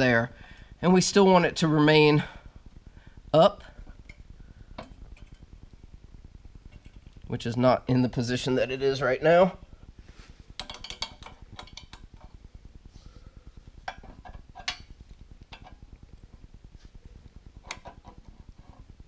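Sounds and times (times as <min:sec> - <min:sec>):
faint steady hum: 0:00.0 - 0:19.0
wrench clinking on steel nut: 0:10.6 - 0:11.9.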